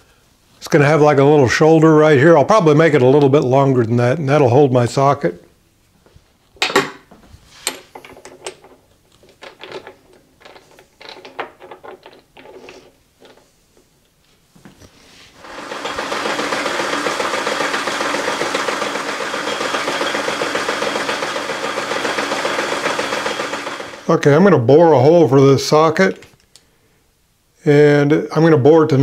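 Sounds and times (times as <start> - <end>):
metal clicks and clunks: 6.6 - 12.6
metal lathe running: 15.4 - 24.1.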